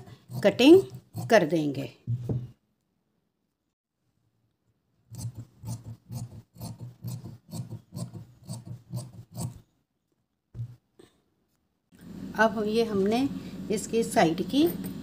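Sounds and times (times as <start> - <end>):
shears snipping through fabric: 5.2 - 9.6.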